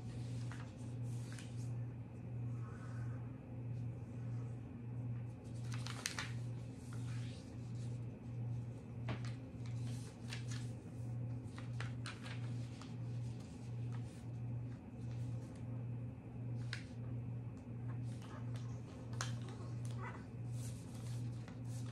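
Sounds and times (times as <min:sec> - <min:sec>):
paper rustling and crinkling: 0:00.0 - 0:01.7, 0:05.4 - 0:15.6, 0:16.6 - 0:17.0, 0:18.0 - 0:21.9
low hum: 0:00.0 - 0:21.9.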